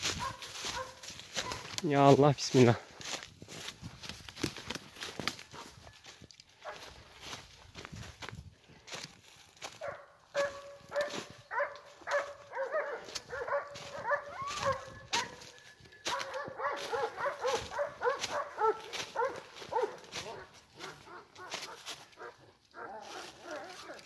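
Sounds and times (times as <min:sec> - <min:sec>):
dogs barking and yelping: 0:00.0 - 0:01.8, 0:06.6 - 0:07.0, 0:09.7 - 0:24.0
footsteps crunching dry leaves: 0:00.0 - 0:24.0.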